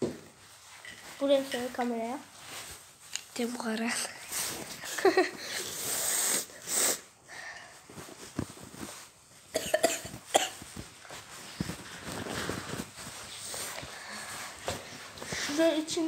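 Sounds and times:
boy talking: 0:01.2 - 0:02.3, 0:15.4 - 0:16.0
boy sniffing: 0:04.3 - 0:07.8
boy coughing: 0:09.5 - 0:10.6.

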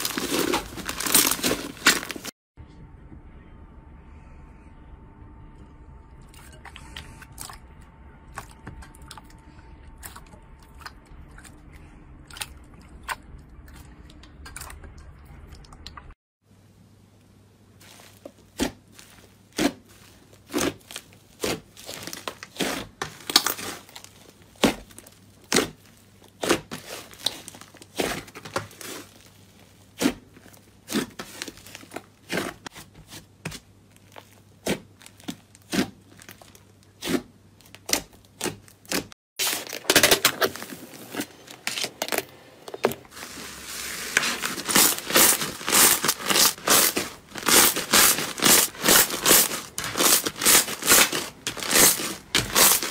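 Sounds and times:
slime squishing with wet pops: 0:17.9 - 0:39.1
slime crackling when stretched: 0:44.2 - 0:52.9.

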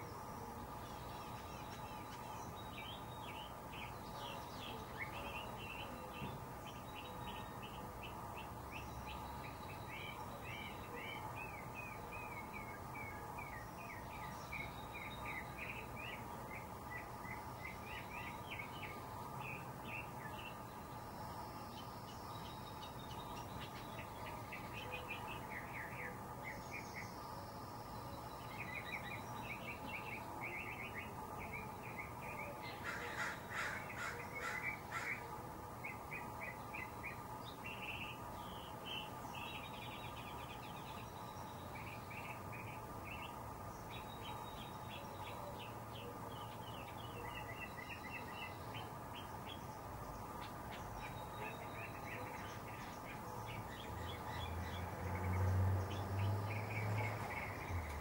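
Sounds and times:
birds chirping: 0:00.0 - 0:58.0
faint steady hum: 0:00.0 - 0:58.0
harsh caw-like bird calls: 0:32.8 - 0:35.3.

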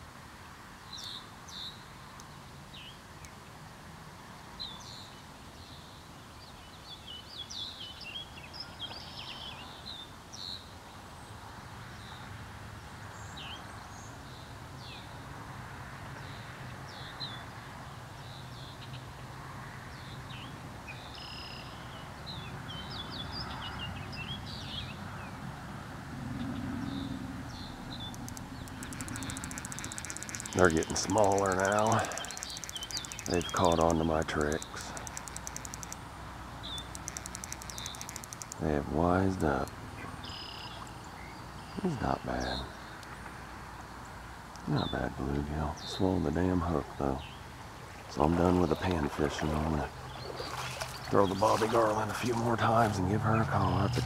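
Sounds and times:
songbirds chirping and singing: 0:26.4 - 0:36.0, 0:36.6 - 0:54.0.

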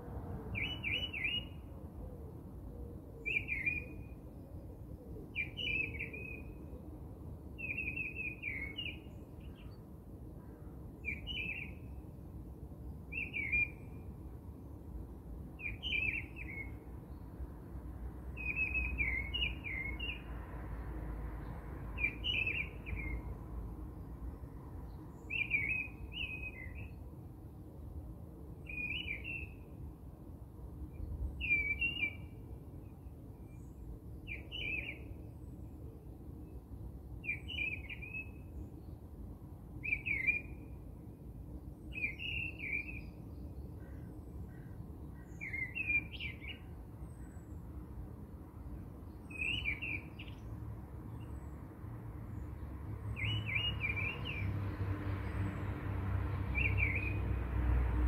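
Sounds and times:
bird chirping call: 0:00.6 - 0:01.6, 0:31.4 - 0:32.4, 0:33.6 - 0:35.2, 0:39.8 - 0:40.6, 0:41.9 - 0:44.0, 0:45.2 - 0:47.5, 0:49.2 - 0:50.4, 0:53.2 - 0:54.5, 0:56.6 - 0:57.2.

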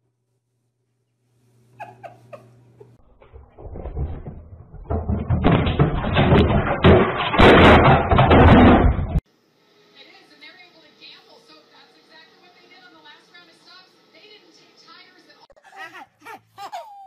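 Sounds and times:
wooden cabinet banging and rattling: 0:03.2 - 0:09.2.

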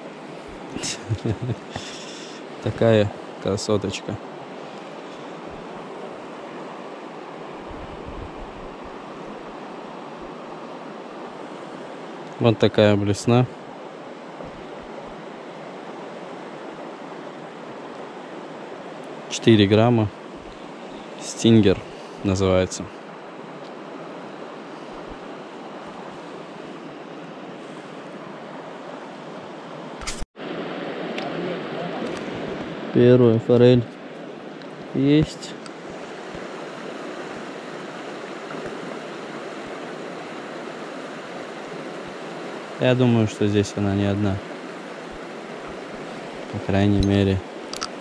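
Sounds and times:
river rushing: 0:00.0 - 0:48.0
river rushing over rocks: 0:34.0 - 0:48.0.

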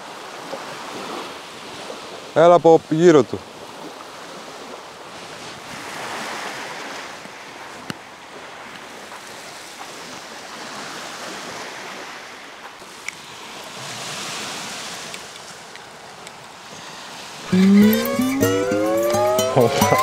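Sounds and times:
sea waves washing onto shore: 0:03.4 - 0:17.4.

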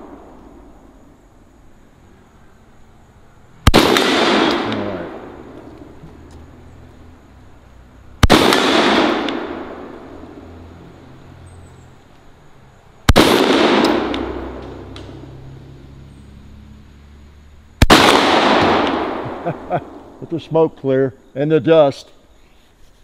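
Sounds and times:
shotgun shots with echo: 0:03.6 - 0:05.6, 0:08.2 - 0:10.0, 0:13.1 - 0:15.2, 0:17.8 - 0:20.0.

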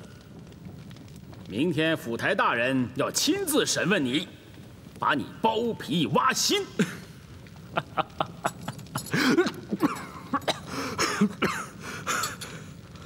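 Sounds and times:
man laughing breathily: 0:07.7 - 0:12.3.

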